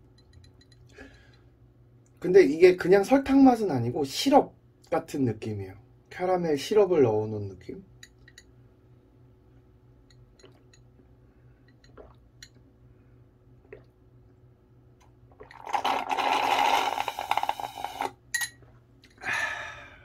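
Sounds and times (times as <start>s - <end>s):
slurping through a metal straw: 15.4s - 18.2s.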